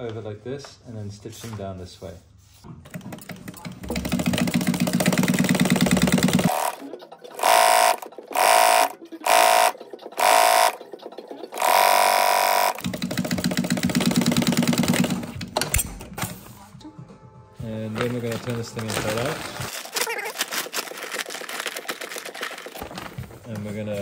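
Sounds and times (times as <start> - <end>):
industrial sewing machine stitching: 2.9 - 15.5.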